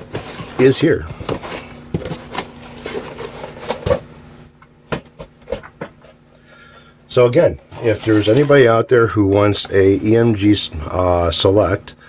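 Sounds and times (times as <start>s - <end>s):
cardboard box rustling and scraping: 0.0s - 4.0s, 7.8s - 8.6s.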